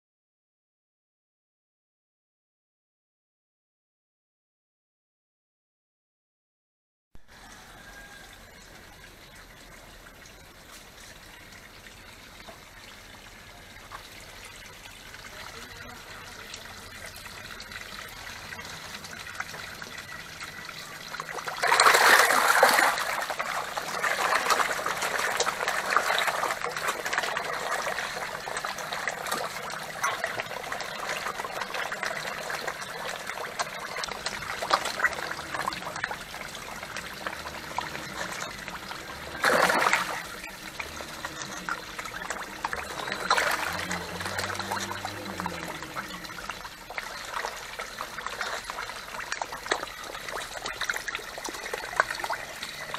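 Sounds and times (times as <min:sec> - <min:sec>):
fish splashing in a pond: 0:07.2 - 0:52.9
water trickling: 0:07.3 - 0:52.9.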